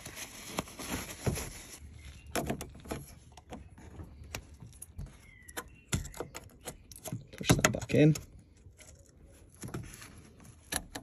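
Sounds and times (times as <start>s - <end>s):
paper towel rustling and rubbing: 0.0s - 2.1s
plastic part clicking and knocking: 5.5s - 8.3s.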